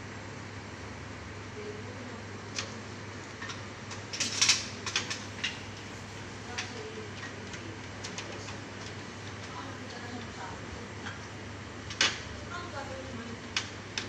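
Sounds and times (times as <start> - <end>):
steady low hum: 0.0 - 14.0
sharp clicks and clatters: 3.4 - 5.9, 13.5 - 14.0.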